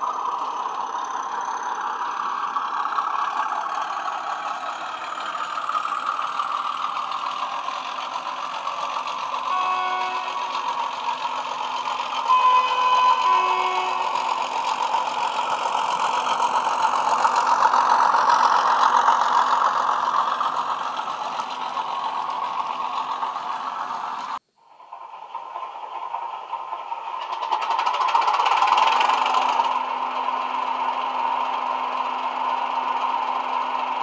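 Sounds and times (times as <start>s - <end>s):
diesel locomotive engine sound: 0.0s - 34.0s
two-note horn: 9.5s - 10.5s, 12.3s - 14.3s.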